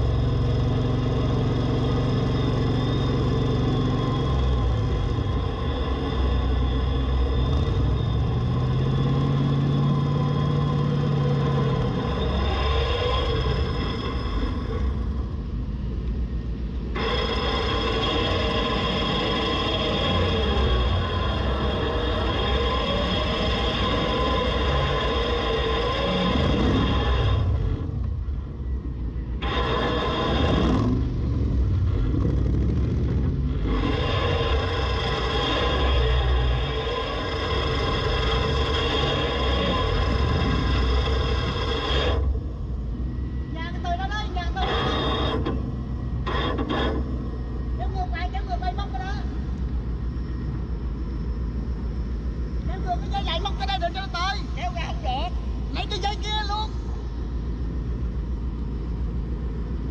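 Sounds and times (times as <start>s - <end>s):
high steady whine: 0.0s - 59.9s.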